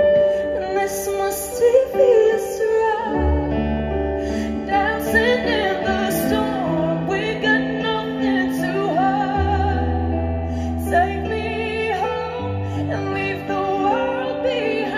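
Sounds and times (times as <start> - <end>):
woman singing: 0.0 - 14.9.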